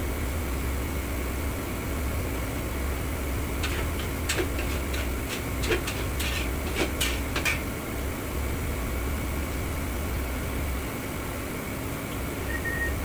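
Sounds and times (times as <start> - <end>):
kitchen fans and burners humming: 0.0 - 13.0
metal utensil clinking in wok: 3.6 - 7.7.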